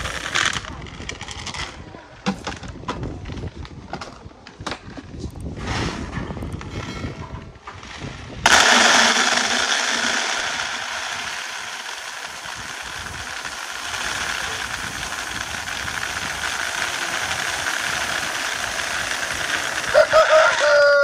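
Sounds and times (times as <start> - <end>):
dry beans pouring into bucket: 0.0 - 0.7, 8.5 - 21.0.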